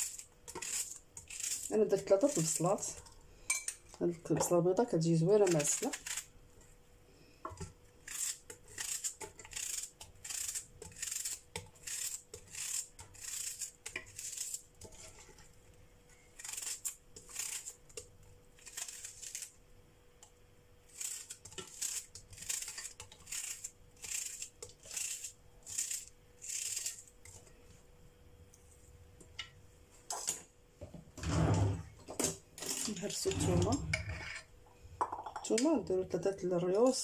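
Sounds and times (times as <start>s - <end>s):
knife crunching through onion: 0.0s - 3.0s, 8.0s - 15.2s, 16.4s - 17.9s, 18.5s - 19.5s, 20.9s - 27.1s.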